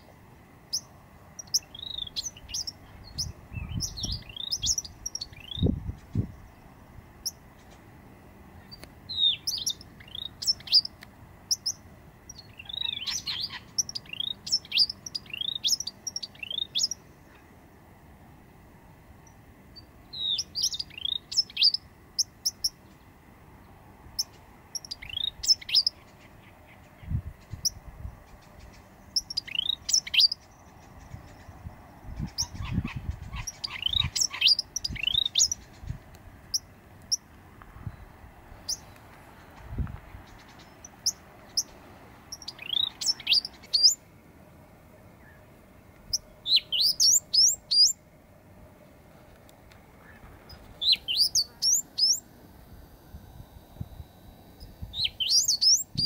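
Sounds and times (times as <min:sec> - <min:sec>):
bird singing whistled notes: 0:00.7 - 0:06.6, 0:08.7 - 0:17.0, 0:19.8 - 0:22.8, 0:24.2 - 0:26.0, 0:27.6 - 0:31.5, 0:32.2 - 0:35.8, 0:42.3 - 0:44.0, 0:46.1 - 0:48.0, 0:50.8 - 0:52.2, 0:54.6 - 0:56.0.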